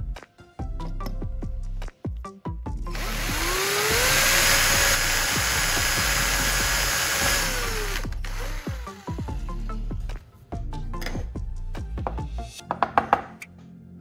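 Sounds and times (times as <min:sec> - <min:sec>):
electric drill boring: 0:02.9 - 0:09.6.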